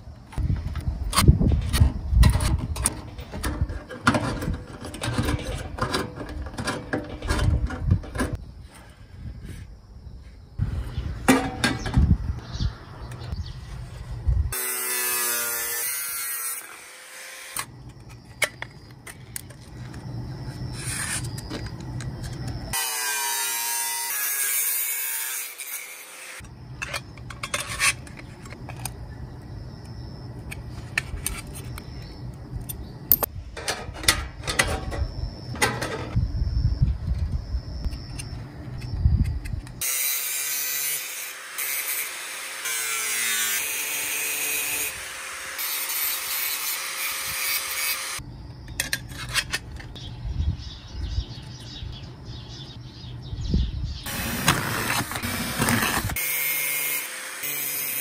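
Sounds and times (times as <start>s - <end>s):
angle grinder cutting metal: 14.6s - 17.7s, 22.8s - 26.4s, 39.8s - 48.2s, 54.1s - 58.0s.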